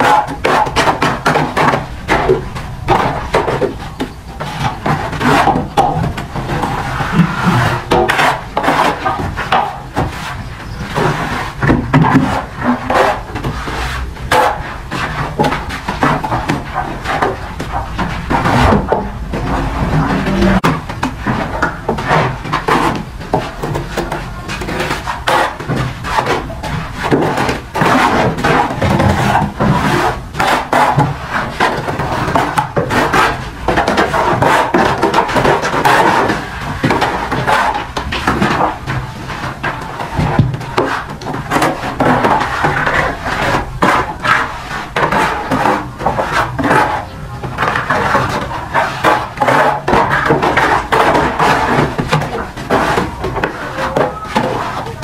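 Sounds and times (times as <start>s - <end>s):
trowel scraping mortar: 0.0s - 55.0s
mortar slapping onto brick wall: 20.6s - 54.8s.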